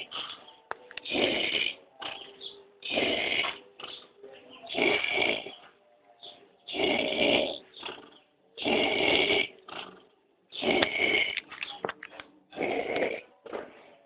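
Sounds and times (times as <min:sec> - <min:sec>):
man snoring: 0:01.0 - 0:02.2, 0:02.8 - 0:03.6, 0:04.7 - 0:05.6, 0:06.7 - 0:07.6, 0:08.6 - 0:09.5, 0:10.6 - 0:11.4, 0:12.6 - 0:13.2.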